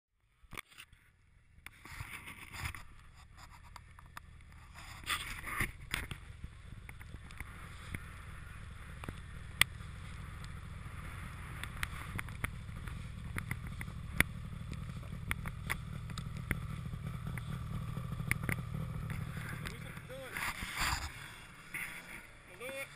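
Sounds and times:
snowmobile engines idling: 1.0s - 22.9s
sharp clicks: 11.5s - 20.3s.

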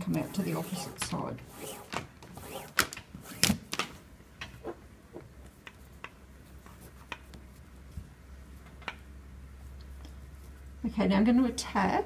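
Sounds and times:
cord rustling and rubbing: 0.0s - 4.0s, 5.4s - 8.8s, 9.6s - 10.8s.

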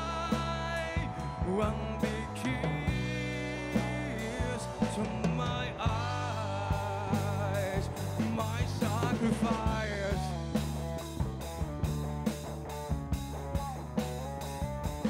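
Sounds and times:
man singing: 0.0s - 11.1s
harmonica lead line: 0.0s - 15.0s
rock band playing live: 0.0s - 15.0s.

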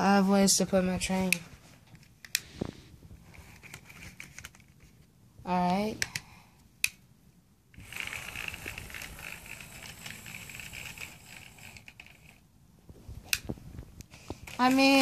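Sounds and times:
model train motor whine: 7.8s - 12.4s
model train rattling: 7.8s - 12.4s.

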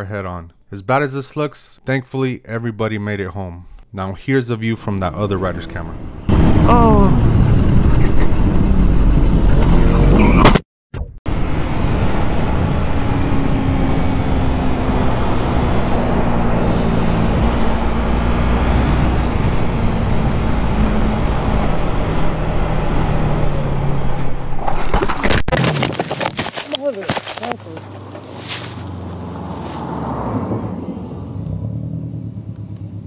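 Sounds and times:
motorcycle engine running: 25.8s - 29.8s.

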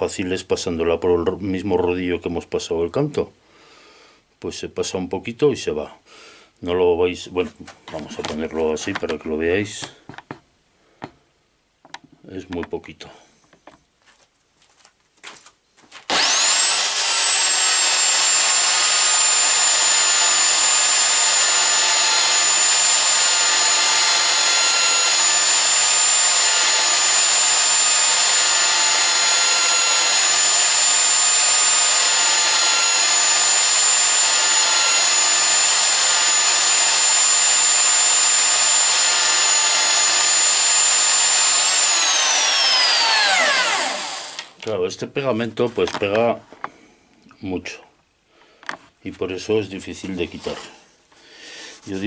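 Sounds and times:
electric drill whining: 16.1s - 44.6s.

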